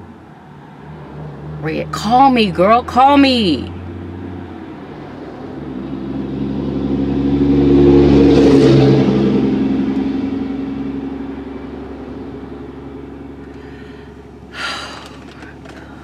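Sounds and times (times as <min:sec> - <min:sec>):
road noise: 0:00.0 - 0:16.0
vehicle engine passing: 0:00.0 - 0:16.0.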